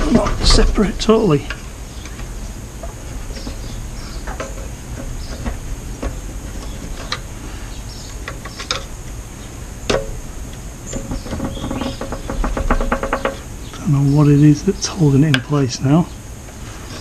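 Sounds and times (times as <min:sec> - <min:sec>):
metal clicks and knocks: 0:00.0 - 0:07.3, 0:08.1 - 0:09.2, 0:09.9 - 0:13.8.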